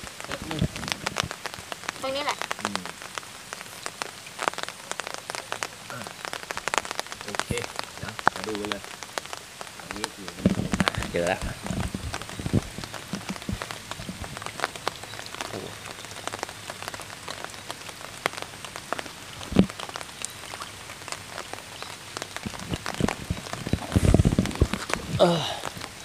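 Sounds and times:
rain on a stream: 0.0s - 26.0s
water moving around wading person: 22.2s - 26.0s.

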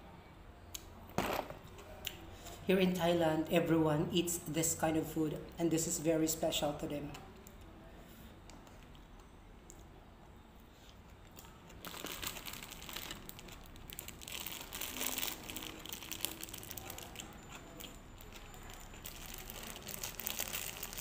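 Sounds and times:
plastic bag crinkling: 11.3s - 21.0s.

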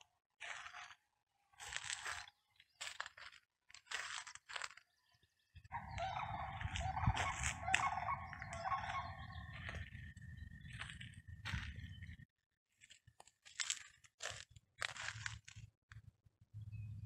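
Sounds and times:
footsteps crunching on dirt trail: 0.4s - 1.0s, 1.6s - 5.0s, 5.7s - 12.2s, 12.8s - 15.7s
birds chirping: 4.7s - 12.3s.

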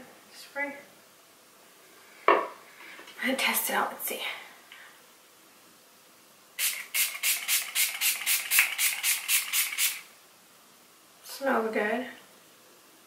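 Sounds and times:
spray bottle hissing: 6.6s - 10.1s.

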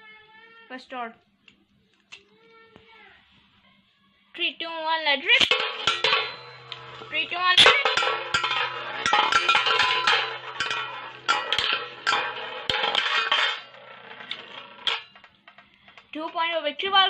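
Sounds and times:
spinning tops whirring: 5.3s - 15.6s
spinning tops clacking together: 5.3s - 16.1s.

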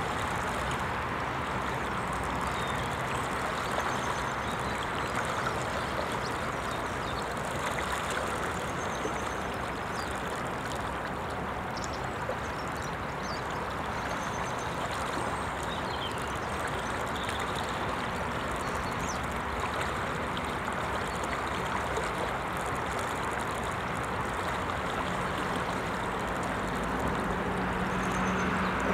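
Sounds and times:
river water flowing over gravel: 0.0s - 28.9s.

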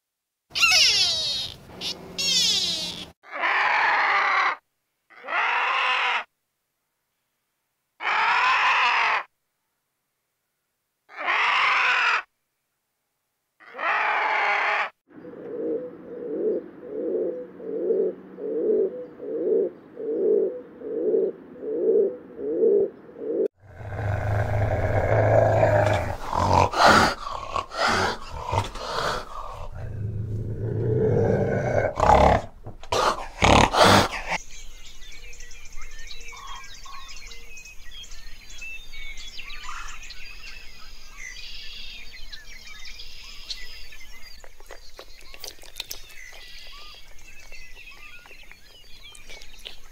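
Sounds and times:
birds outdoors: 0.5s - 3.4s, 13.6s - 49.9s
harsh cawing bird calls: 0.6s - 6.3s, 8.0s - 9.3s, 11.1s - 12.3s, 23.8s - 29.9s, 39.4s - 40.1s
pigeons cooing: 15.2s - 34.4s
rough animal-like sound: 23.5s - 34.4s.

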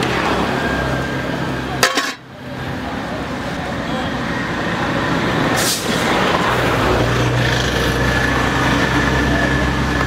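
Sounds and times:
large vehicle engine running: 0.0s - 10.0s.

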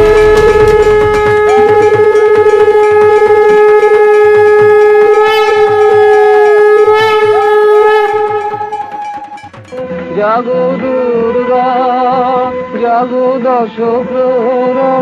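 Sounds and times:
conch shell blown with trills: 0.0s - 11.3s.

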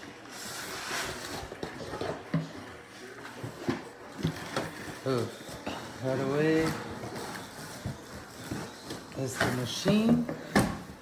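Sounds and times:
plastic bag rustling: 0.1s - 10.1s.

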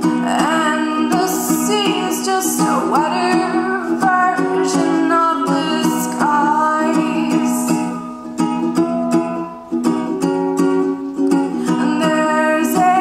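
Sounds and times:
woman singing: 0.0s - 8.1s, 11.5s - 13.0s
strummed ukulele: 0.0s - 13.0s.

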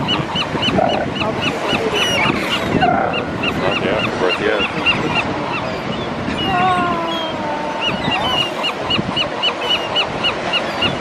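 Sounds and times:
gulls calling: 0.0s - 11.0s
surf washing: 0.0s - 11.0s.

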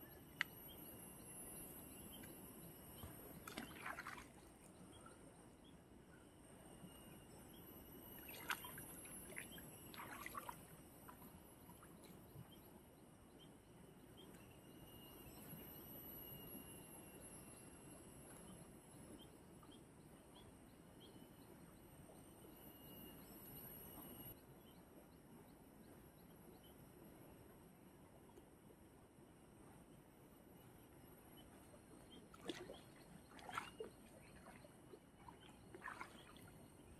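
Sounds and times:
river flowing: 35.2s - 36.4s.

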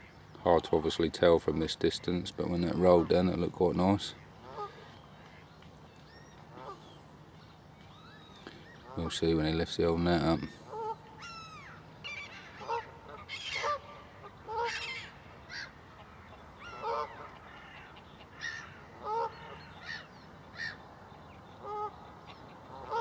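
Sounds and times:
faint outdoor background noise: 0.0s - 23.0s
geese honking: 1.7s - 5.5s, 6.5s - 7.0s, 8.3s - 20.8s, 21.5s - 23.0s.

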